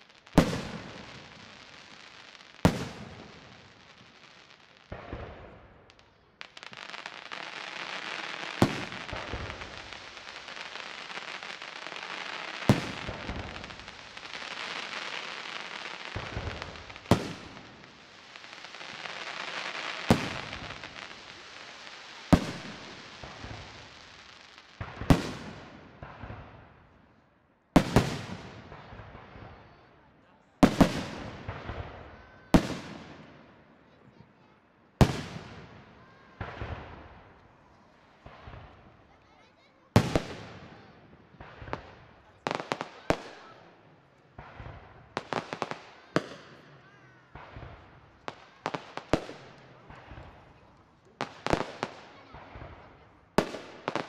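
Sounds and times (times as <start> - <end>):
continuous hiss: 0.0 - 26.0.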